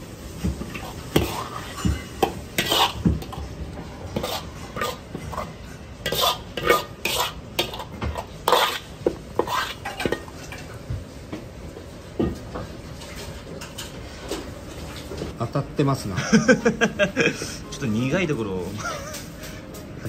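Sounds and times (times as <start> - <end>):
utensils clinking on plates and pans: 0.4 - 10.8, 12.2 - 15.3.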